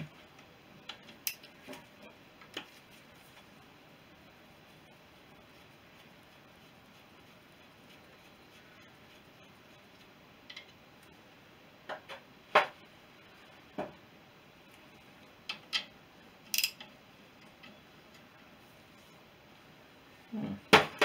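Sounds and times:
metal tools clinking and knocking: 16.5s - 16.9s.

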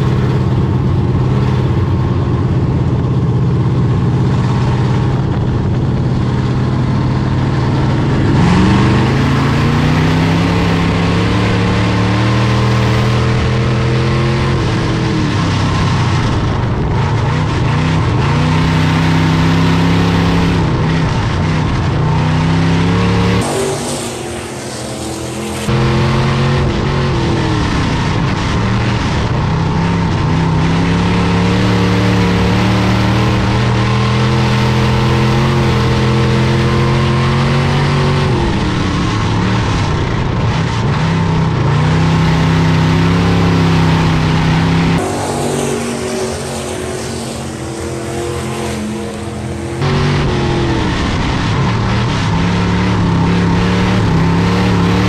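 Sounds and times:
racing car engine revving: 0.0s - 55.0s.

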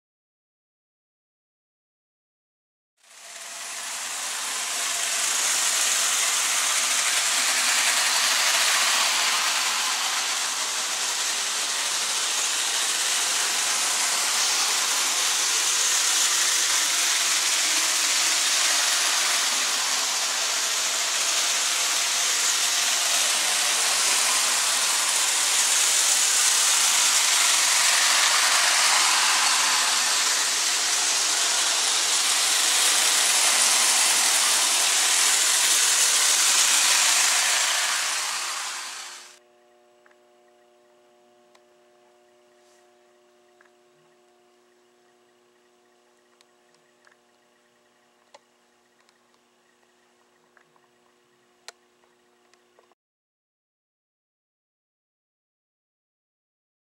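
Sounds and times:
toy train whirring on metal rails: 3.0s - 39.4s.

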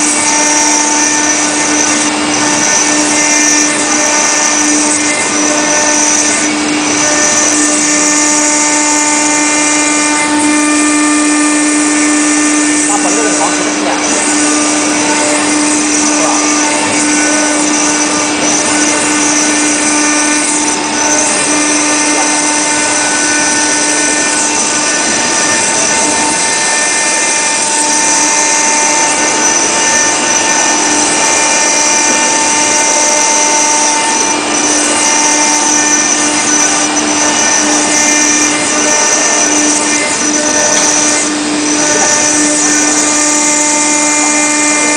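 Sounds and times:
router spindle whine grinding marble: 0.0s - 44.9s.

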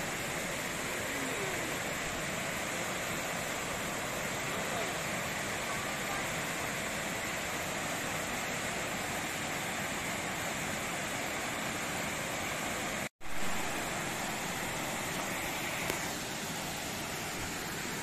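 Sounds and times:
waterfall rushing: 0.0s - 18.0s.

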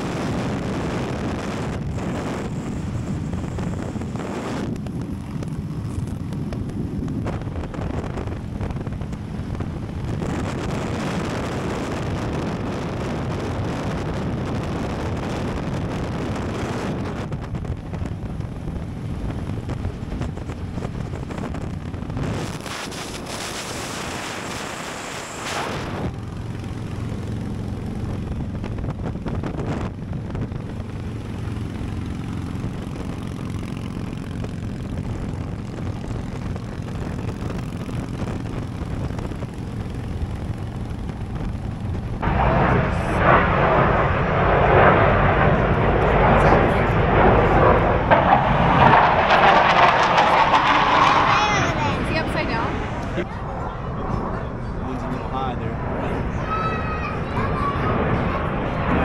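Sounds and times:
motorcycle engine at speed: 0.0s - 53.4s
wind noise on microphone: 0.0s - 59.0s.

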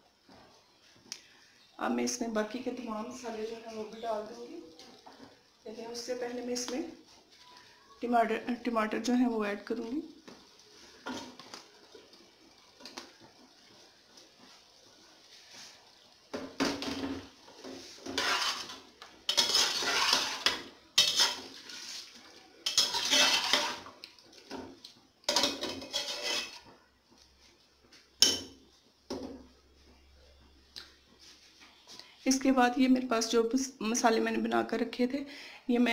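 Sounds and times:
metal spatula scraping a pot: 16.6s - 24.0s, 25.3s - 26.8s
metal clack on a pot: 25.3s - 26.6s.

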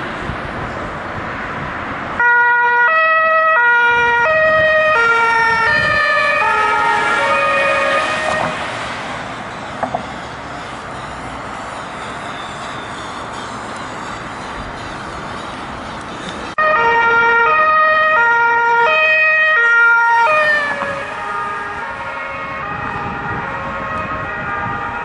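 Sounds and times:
traffic noise: 0.0s - 25.0s
police two-tone siren: 2.2s - 8.8s, 9.4s - 15.7s, 16.6s - 25.0s.

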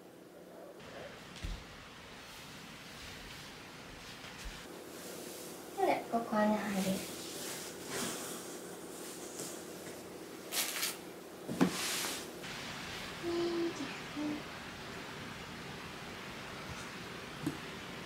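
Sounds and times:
rustling: 0.8s - 6.0s, 6.6s - 12.3s.

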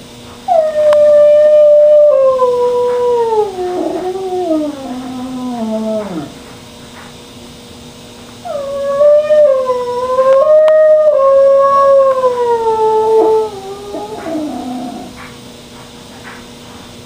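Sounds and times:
dog whining: 0.5s - 6.4s, 8.4s - 15.2s
dog howling: 0.5s - 6.5s, 8.4s - 15.2s.

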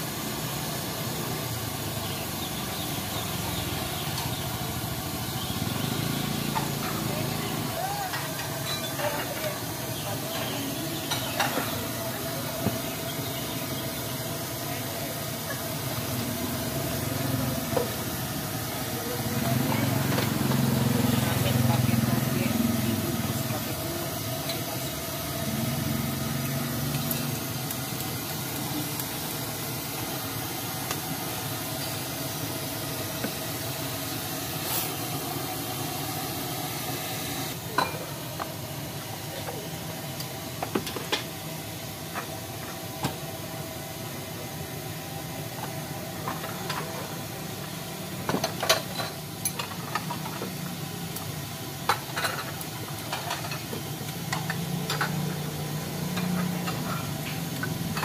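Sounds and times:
utensils clinking against ceramic bowls: 8.1s - 9.6s, 54.3s - 55.2s.

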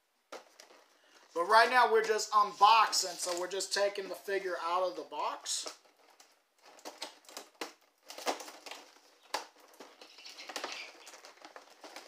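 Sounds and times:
plastic tray crinkling: 0.3s - 12.0s
sharp plastic snaps and clicks: 5.6s - 12.0s.

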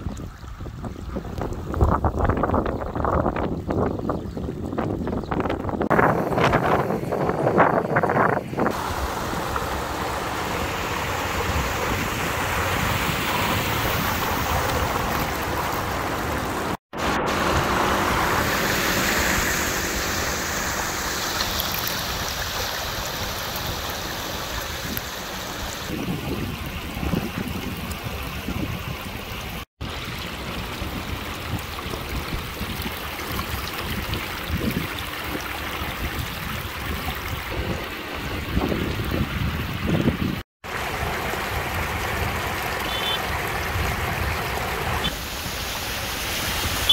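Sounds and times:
flood water rushing: 0.0s - 46.9s.

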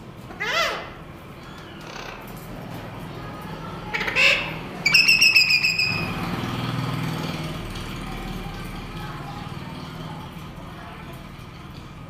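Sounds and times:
buzzy bird chatter: 0.2s - 10.4s
parakeet squawk: 0.3s - 1.0s, 3.9s - 6.2s.

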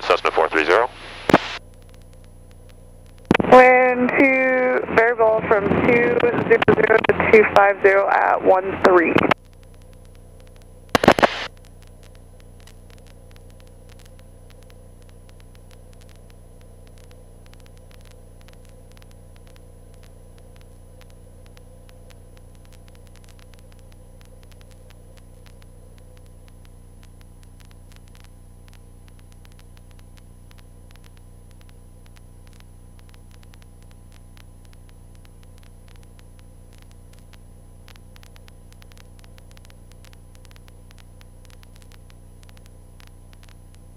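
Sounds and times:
burst of radio noise: 0.0s - 1.6s, 3.3s - 9.4s, 10.9s - 11.5s
electrical hum: 0.0s - 43.9s
faint crackling static: 0.0s - 43.9s.

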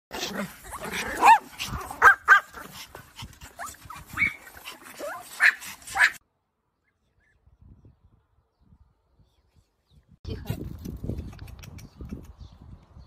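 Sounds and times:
small dogs yapping: 0.1s - 6.2s.

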